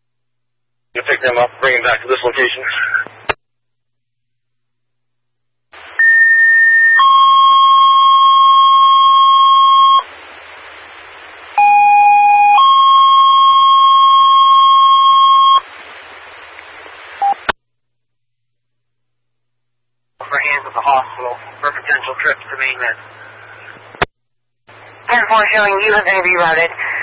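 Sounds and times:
radio hiss: 1.0s - 3.4s, 5.8s - 11.8s, 12.6s - 17.5s, 20.2s - 24.1s, 24.7s - 27.0s
radio squelch click: 2.8s - 3.4s.

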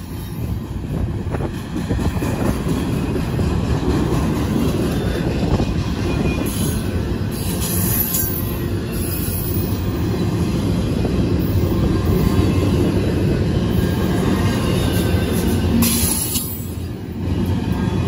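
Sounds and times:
train wheels rumbling on rail: 0.0s - 18.0s
high wheel squeal: 5.5s - 10.0s.

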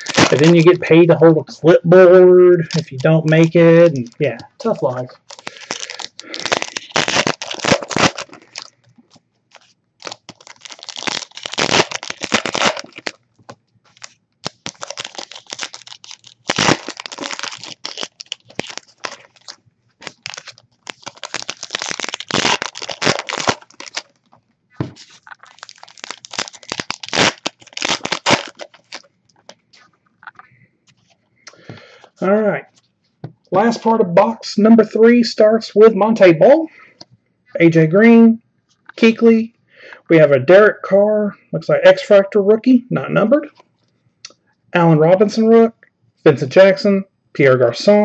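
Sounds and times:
foil wrappers tearing and crinkling: 0.0s - 0.8s, 2.7s - 13.2s, 13.9s - 24.3s, 24.9s - 29.6s.

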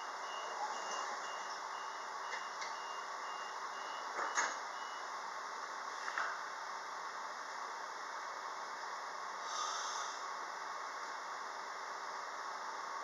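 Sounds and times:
train door warning beeper: 0.0s - 5.1s.

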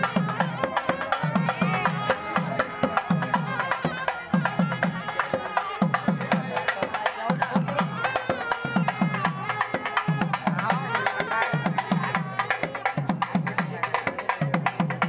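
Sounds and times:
frame drums beating: 0.0s - 15.0s.

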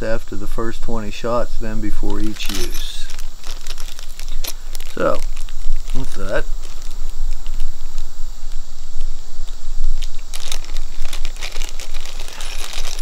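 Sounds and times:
low steady hum: 0.0s - 13.0s
plastic bags crinkling: 2.1s - 7.8s, 10.0s - 13.0s.

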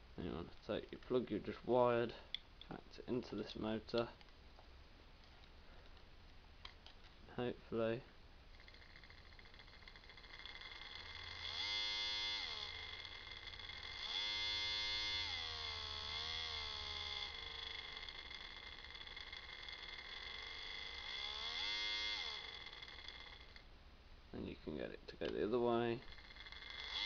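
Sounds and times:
electric gear motor whining: 8.5s - 23.6s, 26.0s - 27.0s.

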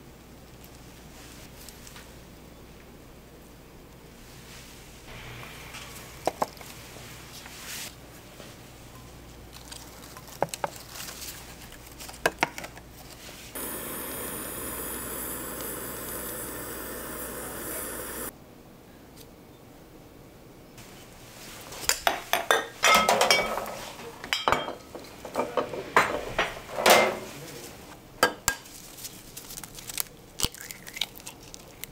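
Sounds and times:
steady rushing hiss: 4.4s - 7.9s, 13.5s - 18.3s
tableware clinking: 21.9s - 27.4s.

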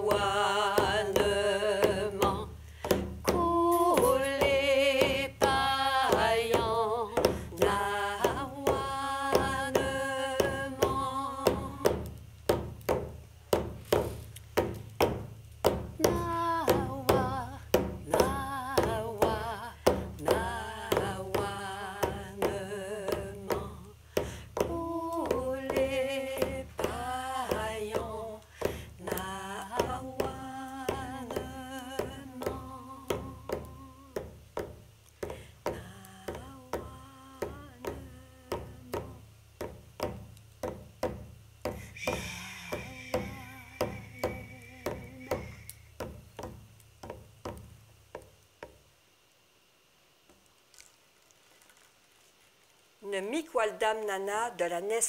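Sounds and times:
women singing a chant: 0.0s - 12.1s, 16.0s - 34.3s, 42.0s - 45.7s
frame drum beats: 0.0s - 48.8s.

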